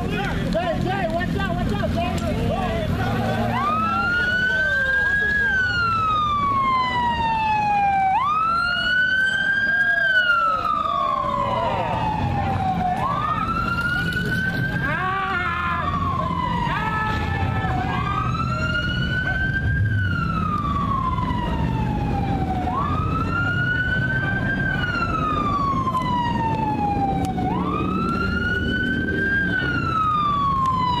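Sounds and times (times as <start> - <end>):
police siren wailing: 0.0 - 31.0.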